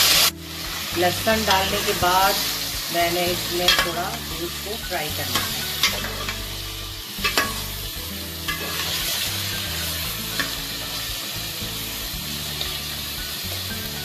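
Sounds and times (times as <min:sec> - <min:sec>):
meat sizzling in oil: 0:00.0 - 0:14.0.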